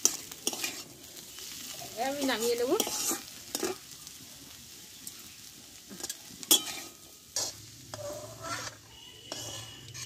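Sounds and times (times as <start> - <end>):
metal spatula scraping a pan: 0.0 - 1.6, 2.2 - 3.9, 5.9 - 10.0
food sizzling: 0.0 - 10.0.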